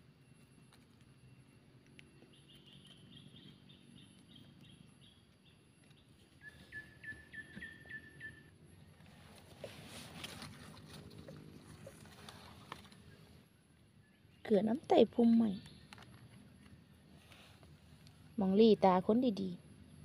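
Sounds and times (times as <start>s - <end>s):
faint low hum: 0.0s - 20.0s
birds calling: 2.2s - 16.7s.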